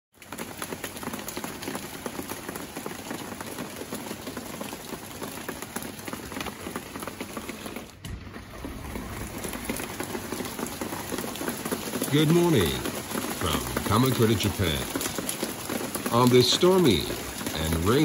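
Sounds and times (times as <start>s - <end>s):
heavy rain pouring: 0.1s - 18.0s
low rumble: 8.0s - 11.0s.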